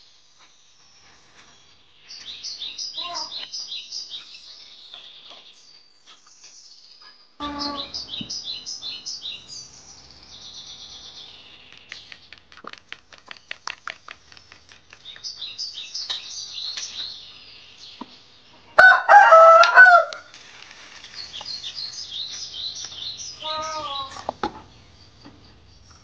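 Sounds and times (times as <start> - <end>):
small birds chirping: 0.0 - 19.0, 20.2 - 26.0
rooster crowing: 18.8 - 20.3.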